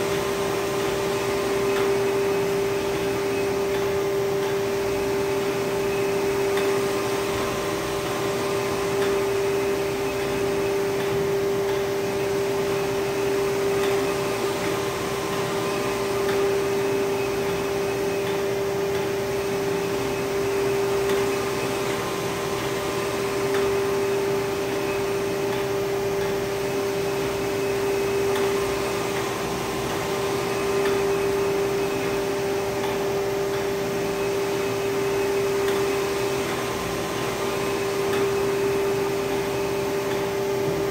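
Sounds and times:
printer machine whirring: 0:00.0 - 0:40.9.

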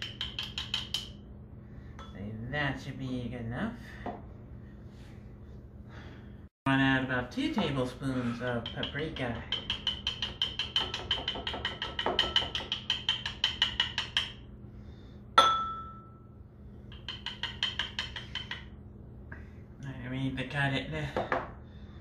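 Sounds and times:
spice container tapping on spoon: 0:00.0 - 0:01.2, 0:08.6 - 0:14.4
sharp ringing clink: 0:15.4 - 0:16.4.

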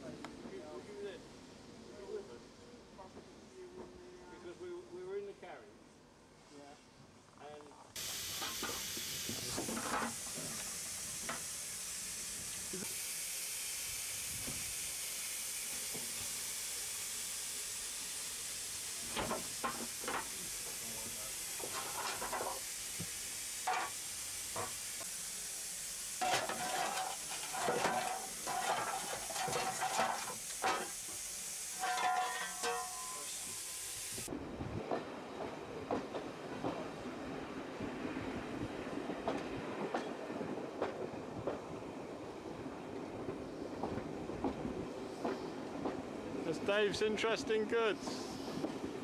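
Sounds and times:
steady steam hiss: 0:00.0 - 0:49.0
short metallic knocks and scrapes: 0:21.6 - 0:22.6, 0:26.2 - 0:31.0, 0:31.8 - 0:33.4.

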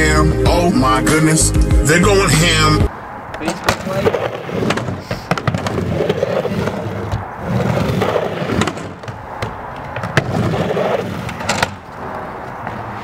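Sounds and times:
skateboard clacks: 0:03.3 - 0:13.0
skateboard wheels rolling on ramp: 0:03.3 - 0:13.0.

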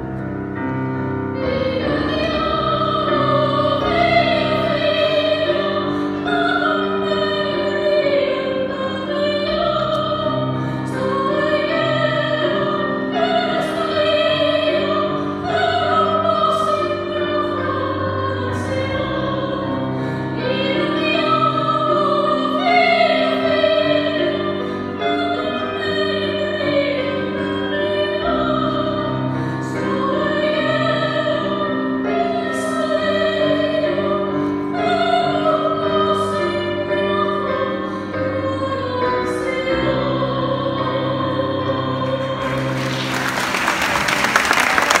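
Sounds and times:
grand piano accompaniment: 0:00.0 - 0:45.0
woman singing: 0:20.4 - 0:42.7
audience applause: 0:42.4 - 0:45.0.

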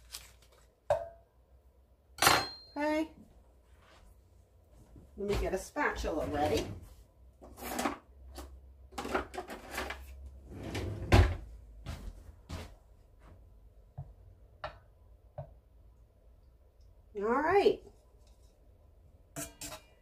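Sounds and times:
drawers and cupboards knocking: 0:10.6 - 0:11.5.

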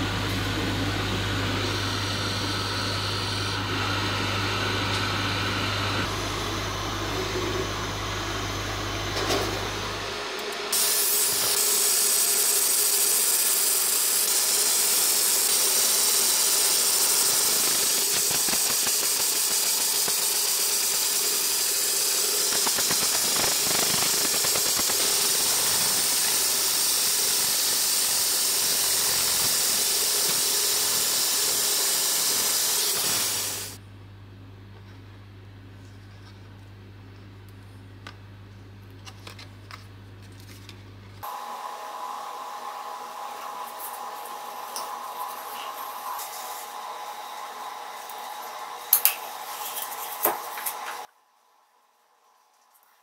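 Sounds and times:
laser steady hiss: 0:10.8 - 0:33.8.

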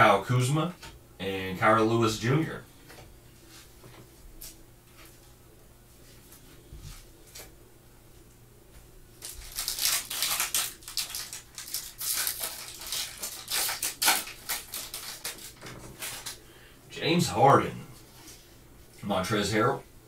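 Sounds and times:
foil wrapper crinkling and tearing: 0:09.2 - 0:16.4.

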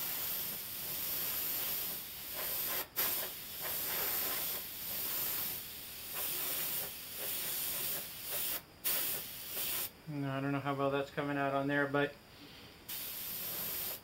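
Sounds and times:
airbrush spraying hiss: 0:00.0 - 0:09.9, 0:12.9 - 0:14.0.

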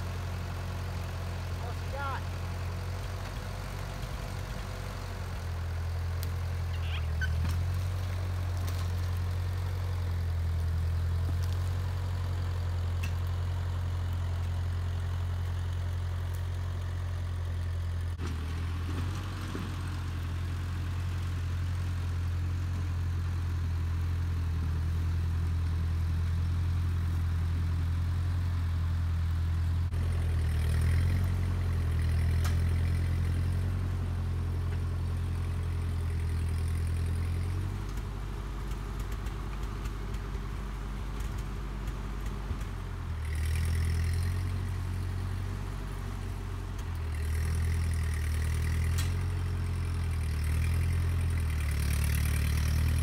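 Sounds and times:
heavy log skidding: 0:00.0 - 0:12.4, 0:18.1 - 0:22.0
tractor engine running: 0:00.0 - 0:53.0.

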